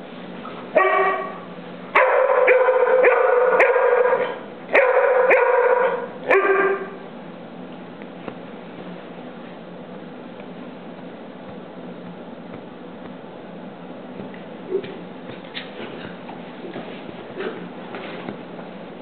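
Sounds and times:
dog barking: 0.8s - 7.0s.

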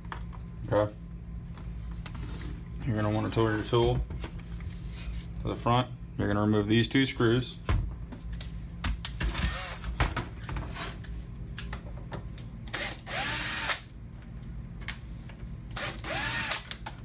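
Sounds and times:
cordless power screwdriver: 15.7s - 16.7s.

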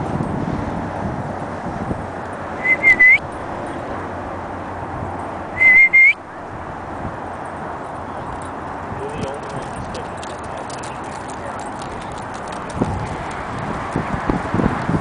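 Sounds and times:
short high whistles: 2.6s - 3.3s, 5.6s - 6.2s.

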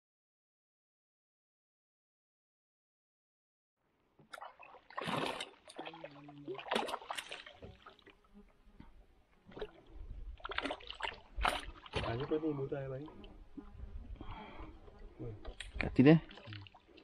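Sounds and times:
water sloshing: 4.2s - 8.2s, 8.8s - 17.0s
fish splashing in water: 4.3s - 8.2s, 9.5s - 12.4s, 15.4s - 17.0s.

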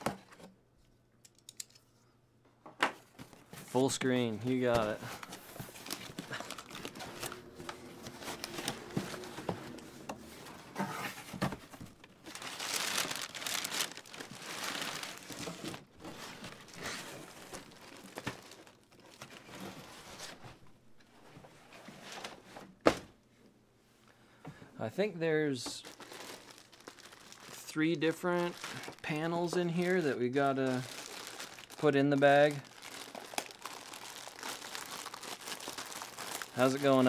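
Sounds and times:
paper and plastic wrap crinkling: 3.2s - 20.4s, 25.6s - 37.0s
cardboard flaps scraping: 4.7s - 13.8s.

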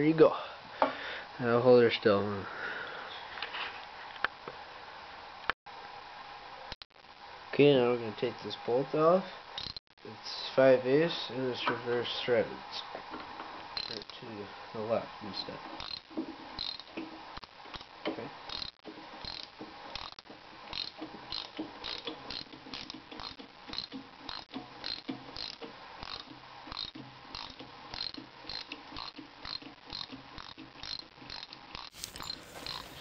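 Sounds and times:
socket wrench ratchet clicking: 16.6s - 16.8s, 18.5s - 20.1s, 20.7s - 31.9s.

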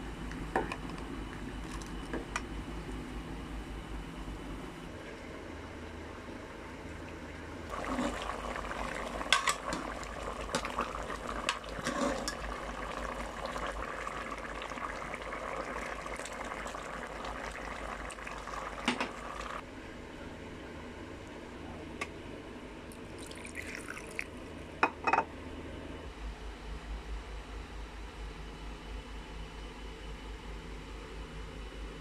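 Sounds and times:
chicken in gravy bubbling and sizzling: 7.7s - 19.6s.

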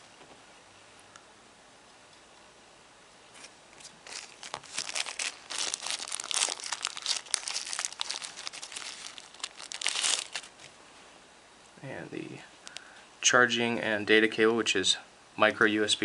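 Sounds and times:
plastic bag crinkling: 3.3s - 10.7s.

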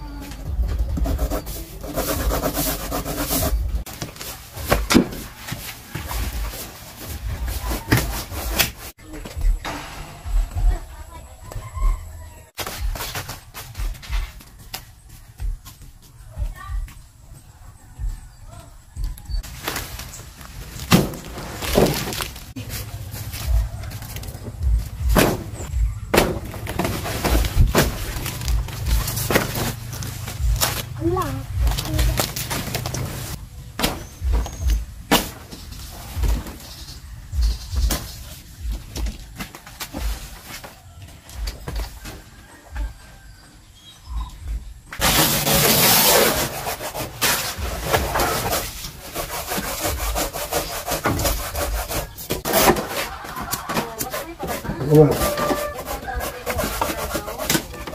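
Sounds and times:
leaves ripping: 19.4s - 22.9s
leaves rustling: 19.4s - 24.3s
dull low bumps: 22.4s - 35.1s.

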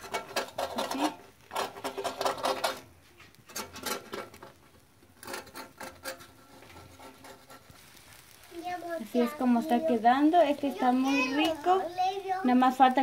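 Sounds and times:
metal fork scraping griddle: 0.0s - 4.6s, 5.2s - 8.3s.

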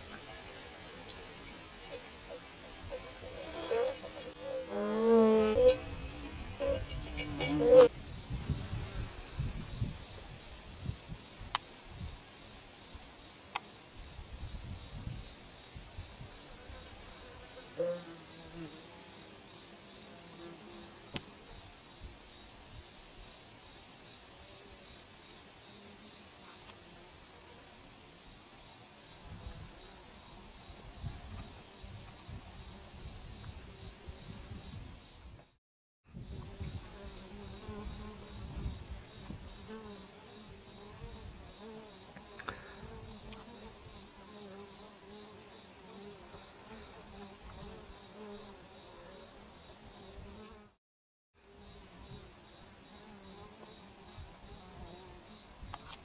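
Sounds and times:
insects chirping: 0.0s - 35.4s.

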